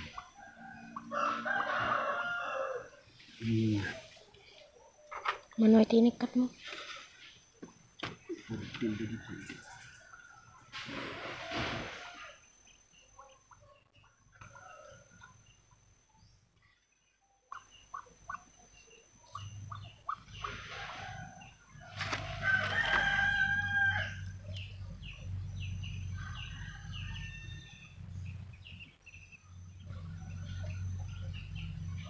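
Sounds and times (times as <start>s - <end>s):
rooster crowing: 0.0s - 3.1s, 8.8s - 12.4s, 20.7s - 24.6s, 25.5s - 28.0s
low steady hum: 5.5s - 32.0s
ducklings peeping: 17.5s - 32.0s.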